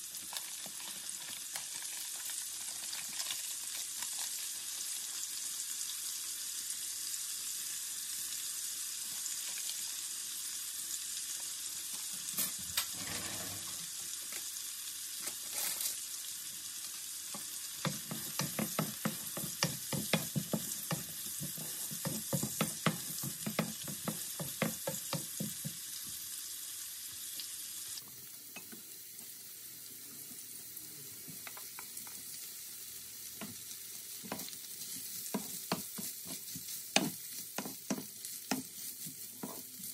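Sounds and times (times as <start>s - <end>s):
vegetables sizzling in a frying pan: 0.0s - 39.9s
wooden spoon scraping a pan: 12.8s - 13.9s, 17.8s - 25.0s, 34.2s - 39.9s.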